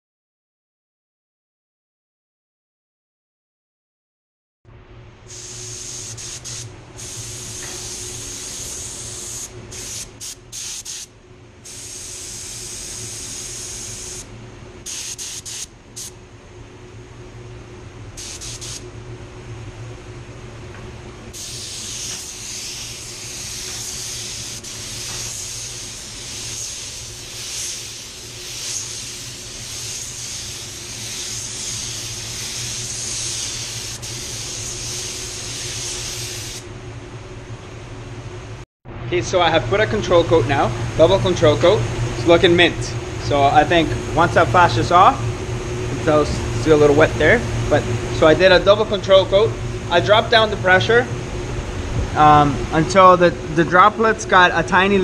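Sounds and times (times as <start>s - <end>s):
steady low hum: 4.7s - 55.0s
spray gun hissing: 5.3s - 16.1s, 18.2s - 18.8s, 21.4s - 36.6s.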